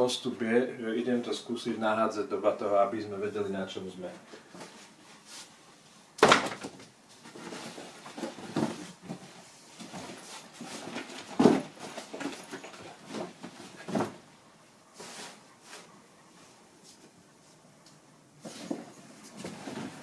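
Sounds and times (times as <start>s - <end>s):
rustling of fabric and bags: 7.0s - 16.0s, 18.4s - 20.0s.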